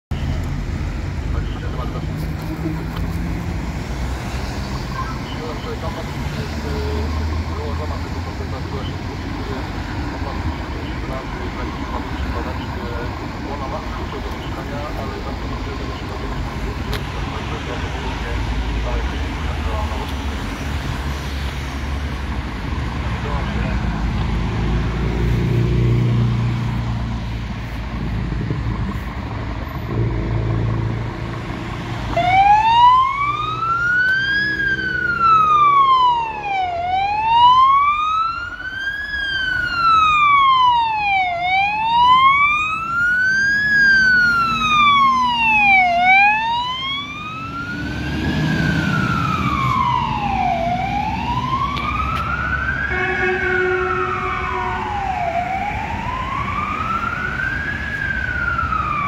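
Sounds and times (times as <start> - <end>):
diesel engine rumble: 0.1 - 59.0
passing cars: 0.1 - 59.0
fire engine siren wailing: 0.2 - 27.2, 29.9 - 59.0
air horn tone: 52.9 - 54.8.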